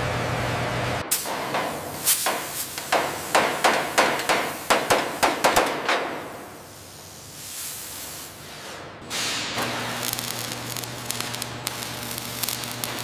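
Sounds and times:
hammer striking steel beam: 0:01.1 - 0:06.4.

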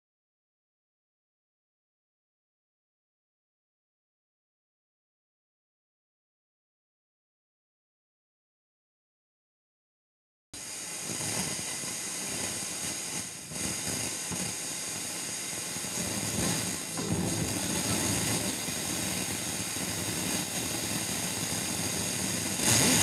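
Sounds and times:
radio static and hiss: 0:10.6 - 0:23.0.

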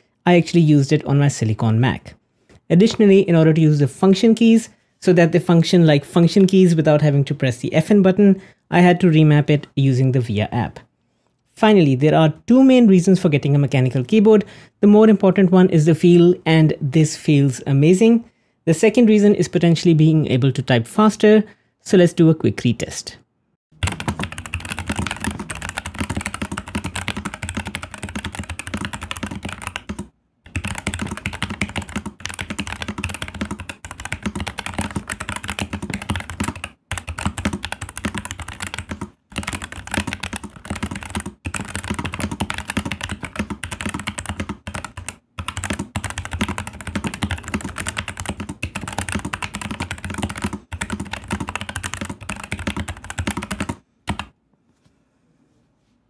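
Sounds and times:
fast typing on mechanical keyboard: 0:23.8 - 0:54.3.

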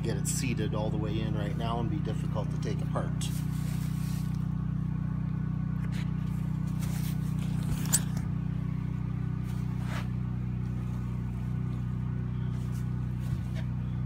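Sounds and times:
low machine hum: 0:00.0 - 0:14.0
handling and scuffing noises: 0:03.2 - 0:04.5, 0:05.8 - 0:08.3, 0:09.3 - 0:14.0.

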